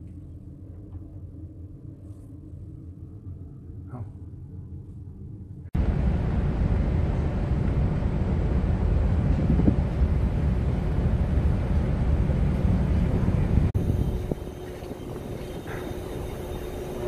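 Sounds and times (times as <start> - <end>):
ship engines rumbling: 2.8 - 17.0
wind on microphone: 7.8 - 17.0.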